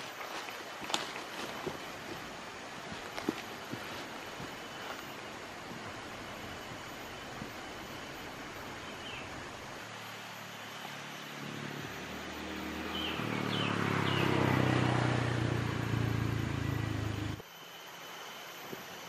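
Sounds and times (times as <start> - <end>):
engine running: 1.4 - 17.4
bird chirps: 6.2 - 9.6, 10.8 - 14.9.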